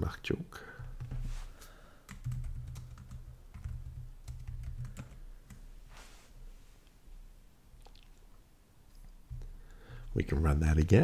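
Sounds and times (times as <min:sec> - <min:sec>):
typing on computer keyboard: 0:02.1 - 0:05.7.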